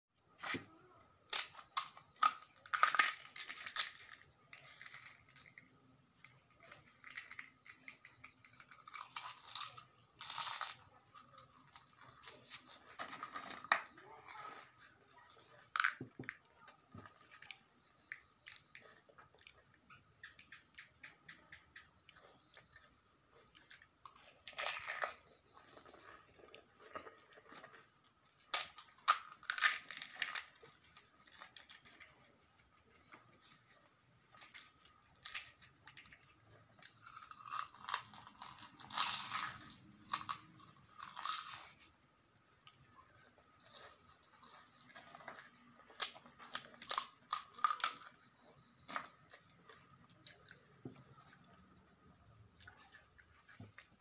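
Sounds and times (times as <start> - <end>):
crisp shells cracking and crunching: 1.2 - 19.6, 23.7 - 32.1, 34.3 - 41.9, 43.6 - 51.2.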